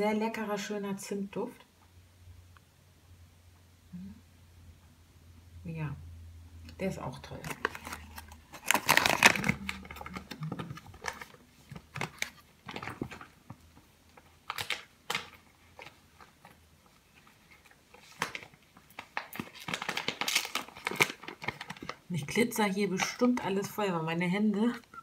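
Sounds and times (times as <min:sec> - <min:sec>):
packaging rustling and clicking: 0:07.4 - 0:22.1.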